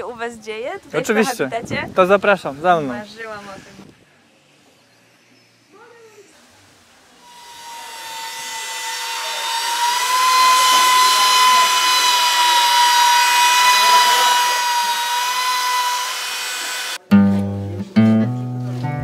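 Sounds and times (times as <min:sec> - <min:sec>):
high-speed motor whining: 0:07.2 - 0:17.0.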